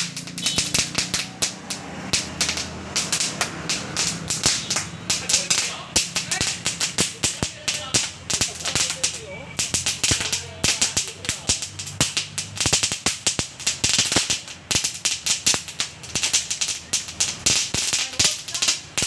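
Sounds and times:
firecrackers banging: 0.0 - 19.0.

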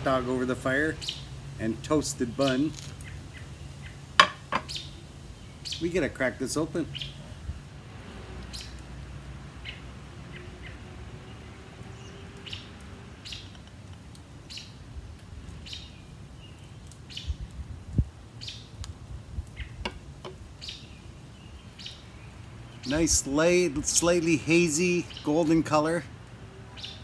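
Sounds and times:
songbird chirping: 2.1 - 6.1, 6.8 - 7.5, 8.4 - 8.8, 9.6 - 13.8, 14.4 - 14.8, 15.5 - 17.5, 19.6 - 27.0.

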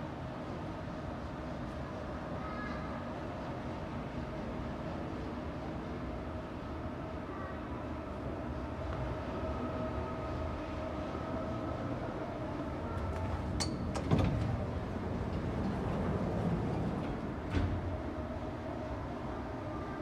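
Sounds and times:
elevator doors opening: 12.6 - 18.6.

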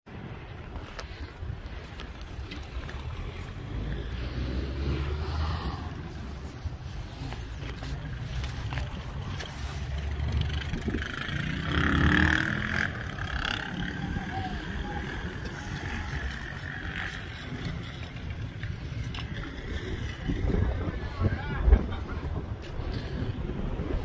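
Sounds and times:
wind rumbling on microphone: 0.1 - 24.0
road vehicle passing: 2.0 - 21.1.

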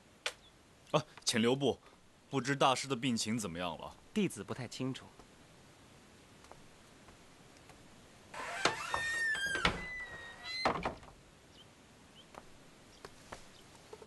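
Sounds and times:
wooden creaking squeal: 8.3 - 11.0.

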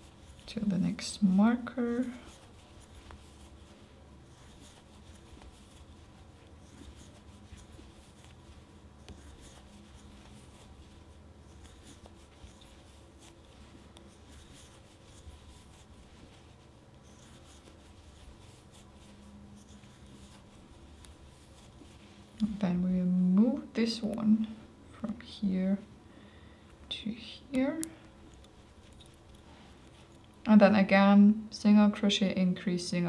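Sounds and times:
crochet hook rubbing yarn: 0.0 - 23.1, 27.6 - 30.4.

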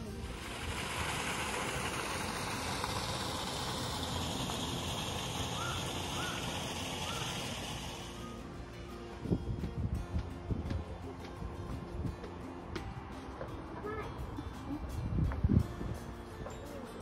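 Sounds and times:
water pouring into river: 0.0 - 8.4.

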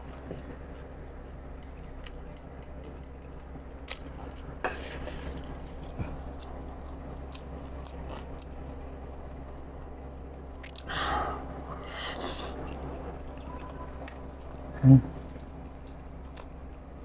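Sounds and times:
low steady hum: 0.0 - 17.0
chewing with wet mouth clicks: 1.6 - 4.5, 5.2 - 8.6, 15.6 - 16.9.

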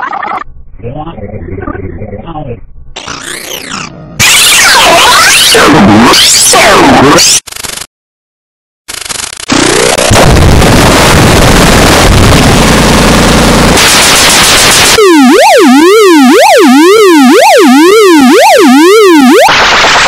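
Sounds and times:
harsh digital noise: 3.0 - 7.9, 8.9 - 20.0.

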